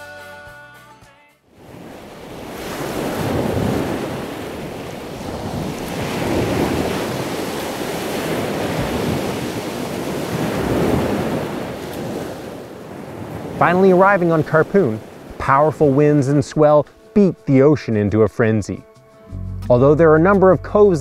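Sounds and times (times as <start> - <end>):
wind on microphone: 1.6 - 13.6
ocean surf breaking on rocks: 1.6 - 18.8.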